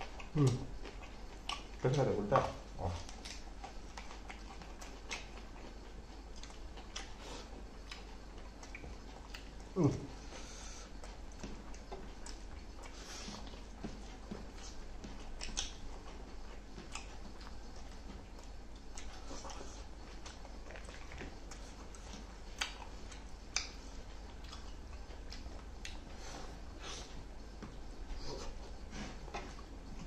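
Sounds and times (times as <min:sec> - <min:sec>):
chewing and lip smacks: 0:00.0 - 0:30.0
steady low hum: 0:00.0 - 0:30.0.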